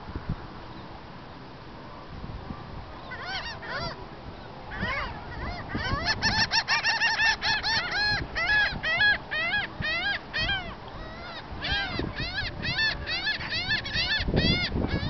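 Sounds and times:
gull calling: 3.0 - 4.0, 4.7 - 15.0.

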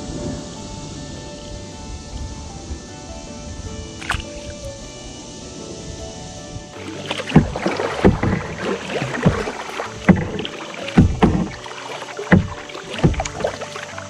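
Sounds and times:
kayak paddle splashing in water: 4.0 - 4.7, 6.7 - 14.0.

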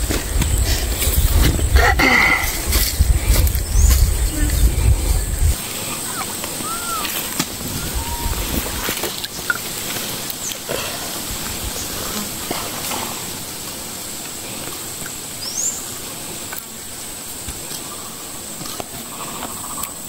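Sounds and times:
high-pitched insect drone: 2.5 - 9.6.

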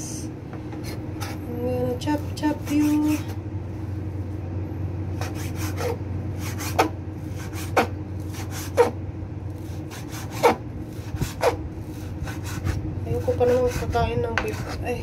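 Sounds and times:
knife chopping on cutting board: 5.2 - 9.0, 9.7 - 11.6.

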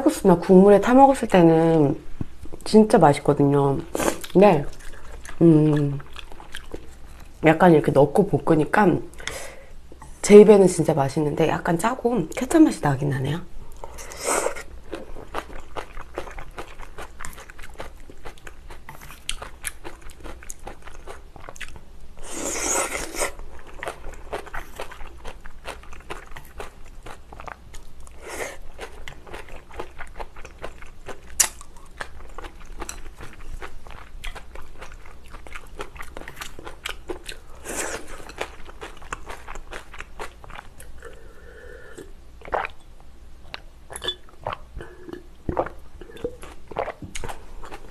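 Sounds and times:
wet chewing and smacking: 4.1 - 7.4, 14.9 - 21.8, 23.5 - 41.0.

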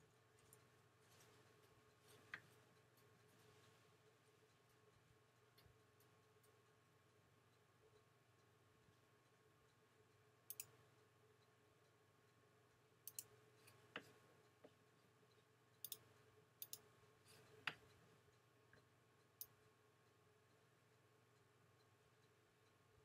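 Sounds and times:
faint hum: 0.0 - 23.0
computer mouse clicks: 10.5 - 10.9, 13.0 - 14.8, 15.8 - 18.0.

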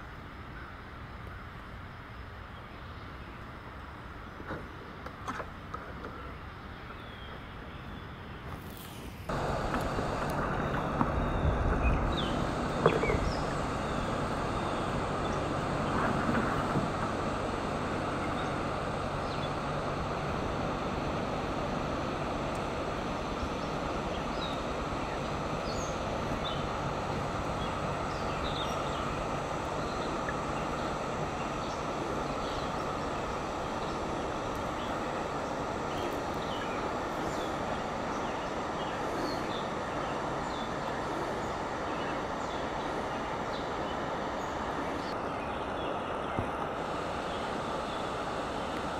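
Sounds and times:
waterfall rushing: 9.3 - 45.2
bird chirps: 10.5 - 16.1.

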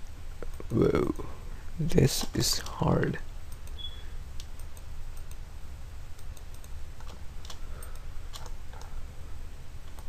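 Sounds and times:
steady low hum: 0.0 - 10.0
keyboard and mouse clicks: 3.5 - 5.4, 6.2 - 8.9.

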